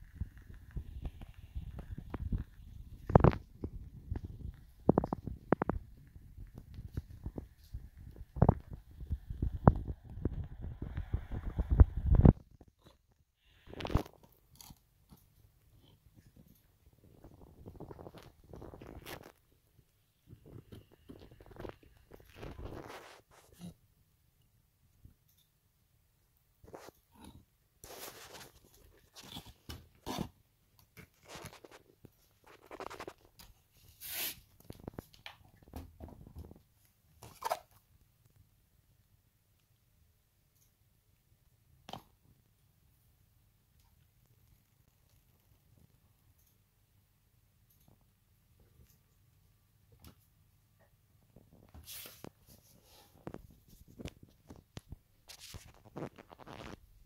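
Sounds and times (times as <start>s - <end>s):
rustling: 0.0s - 23.8s, 26.6s - 38.4s, 51.4s - 57.0s
packaging rustling and scraping: 20.4s - 23.6s, 27.8s - 30.4s, 31.0s - 35.0s.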